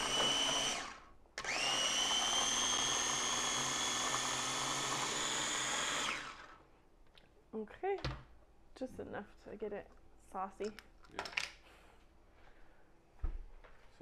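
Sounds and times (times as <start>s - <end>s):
electric food chopper whirring: 0.0s - 6.6s.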